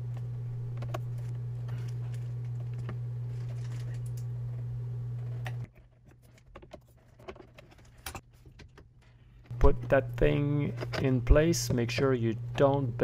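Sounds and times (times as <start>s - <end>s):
steady low hum: 0.0s - 5.7s, 9.0s - 13.0s.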